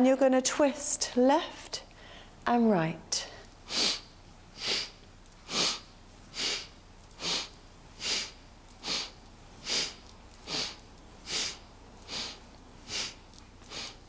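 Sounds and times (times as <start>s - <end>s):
woman breathing through nose: 1.9s - 2.4s, 3.6s - 14.0s.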